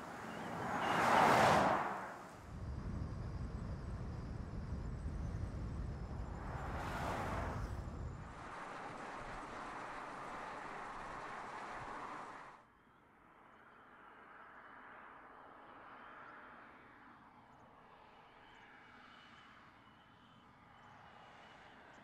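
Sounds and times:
car tyre and wind noise: 0.0s - 12.5s.

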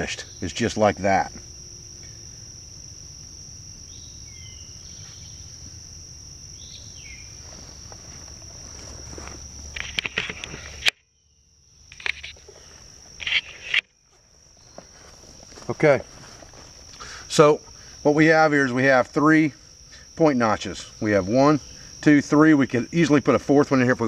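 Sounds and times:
insects chirping: 0.0s - 24.0s
bird chirps: 3.9s - 5.6s, 6.6s - 7.8s
camera handling knocks and rustles: 9.2s - 11.0s.

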